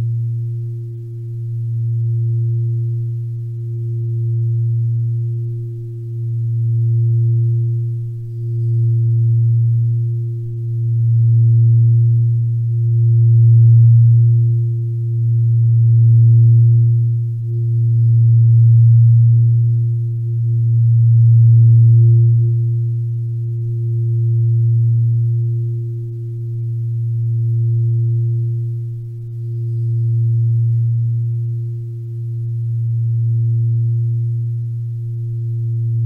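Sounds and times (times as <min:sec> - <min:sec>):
low sustained drone: 0:00.0 - 0:36.0.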